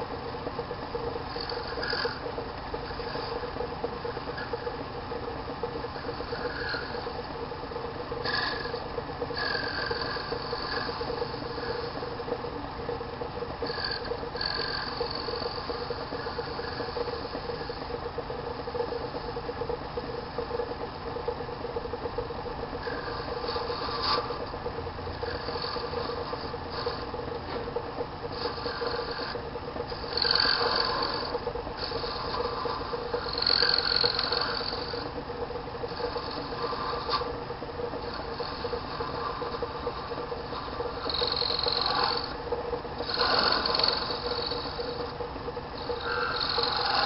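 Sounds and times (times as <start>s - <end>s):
lathe motor hum: 0.0s - 47.0s.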